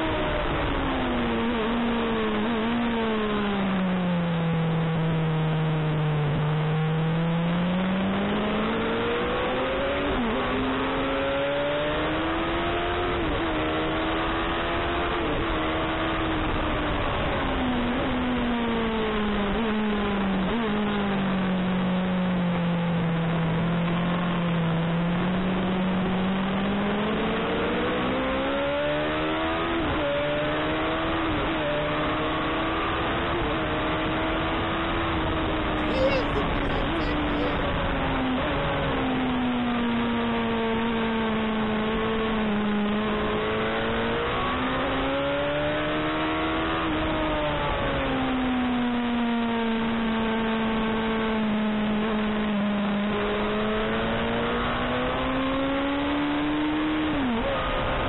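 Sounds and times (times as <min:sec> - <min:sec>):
motorcycle engine revving: 0:25.0 - 0:39.1.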